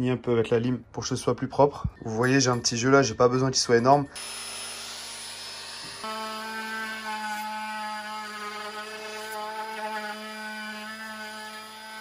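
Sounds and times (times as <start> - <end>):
router cutting wood: 4.2 - 12.0.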